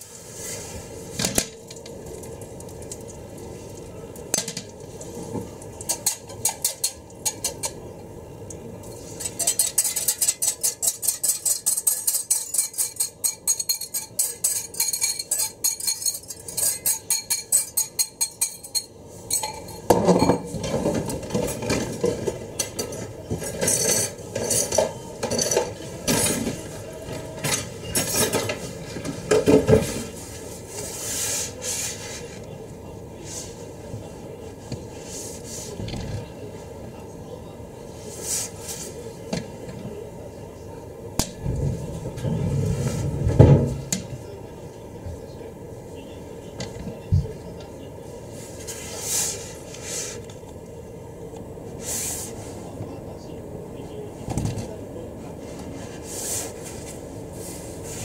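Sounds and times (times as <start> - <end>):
whisk clinking against glass bowl: 9.2 - 20.4
bowl and whisk clattering: 9.2 - 26.6.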